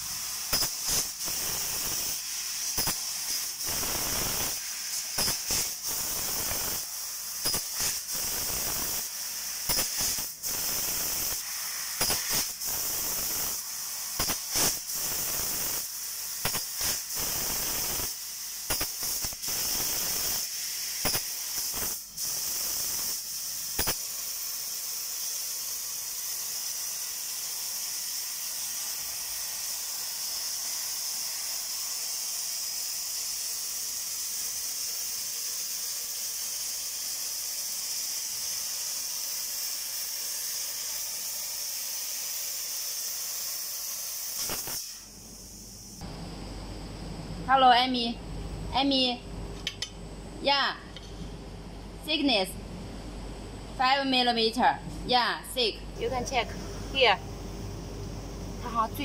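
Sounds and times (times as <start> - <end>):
laser cutter gas hissing: 0.0 - 46.1, 56.0 - 59.0
sharp snaps and pops: 14.2 - 15.8, 16.4 - 18.1, 23.8 - 24.0, 44.3 - 45.0, 49.6 - 50.0.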